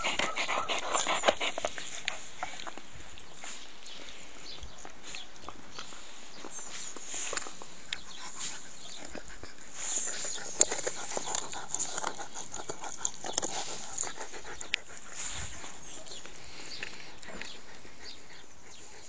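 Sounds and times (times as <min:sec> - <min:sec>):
dog panting: 0:00.0 - 0:03.2, 0:07.3 - 0:19.0.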